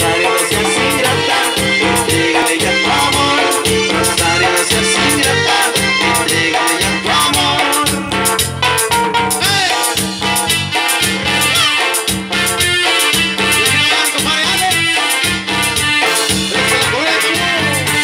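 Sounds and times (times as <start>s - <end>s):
fast busy percussion: 0.0s - 18.0s
live latin dance band: 0.0s - 18.0s
pulsing bass beat: 0.0s - 18.0s.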